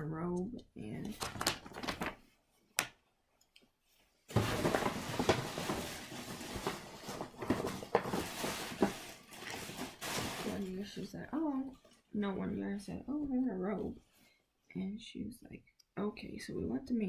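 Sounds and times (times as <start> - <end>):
gift packaging rustling: 1.2 - 2.4, 4.3 - 12.1.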